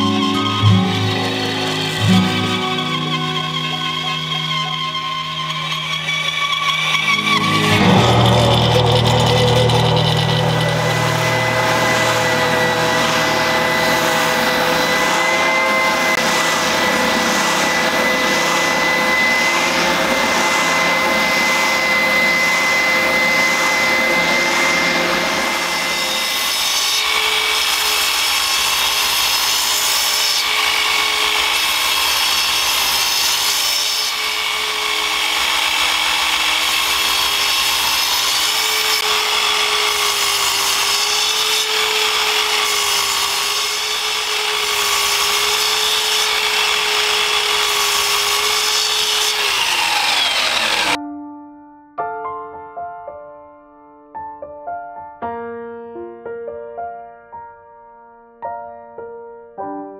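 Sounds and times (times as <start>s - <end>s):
bandsaw humming: 0.0s - 51.0s
mitre saw running: 0.0s - 51.0s
spindle sander whining: 0.0s - 51.0s.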